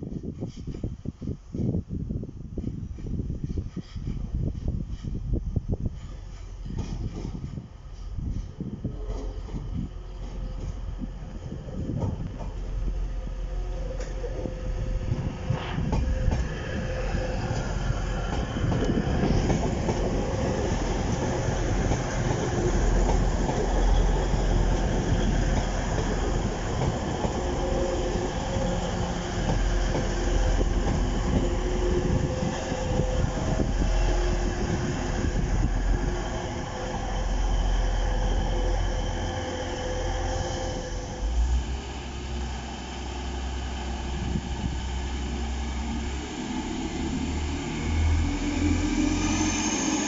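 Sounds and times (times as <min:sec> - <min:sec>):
diesel engines running: 0:38.4 - 0:50.0.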